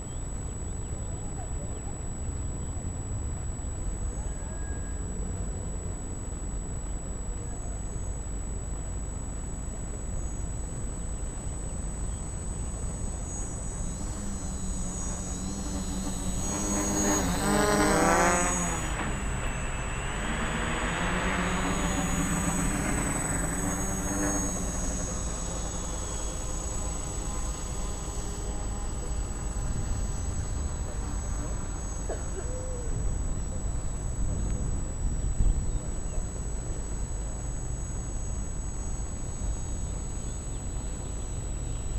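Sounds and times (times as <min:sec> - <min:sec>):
quadcopter propellers buzzing: 0:07.8 - 0:41.0.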